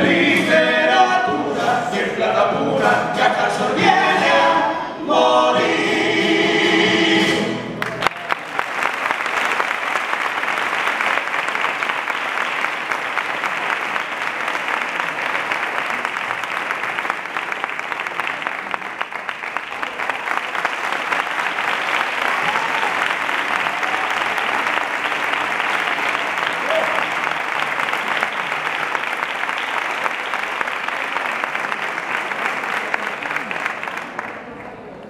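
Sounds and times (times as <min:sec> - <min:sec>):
male voices singing in harmony: 0:00.0 - 0:07.7
audience applause: 0:07.8 - 0:35.0.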